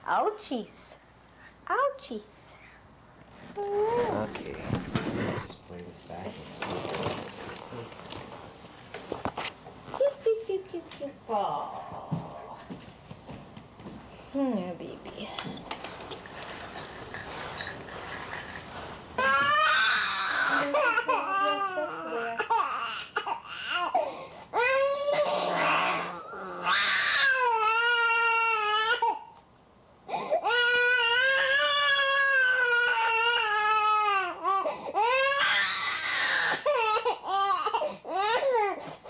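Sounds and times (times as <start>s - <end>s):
infant crying: 19.2s - 29.4s, 30.1s - 38.8s.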